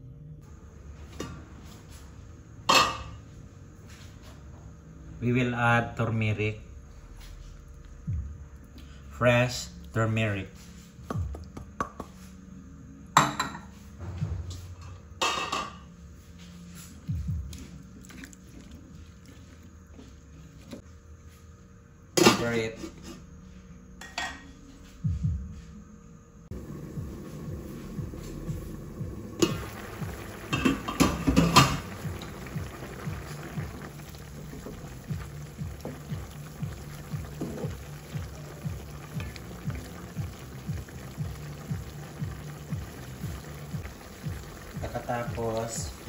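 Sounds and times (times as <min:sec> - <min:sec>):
dishes clinking: 0:02.7 - 0:03.2, 0:30.5 - 0:31.8
curry simmering at a boil: 0:26.5 - 0:46.0.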